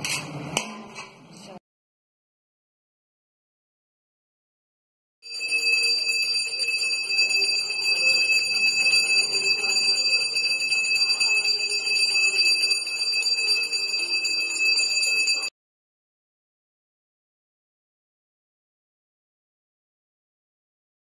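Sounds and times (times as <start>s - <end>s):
bell ringing: 5.2s - 15.5s.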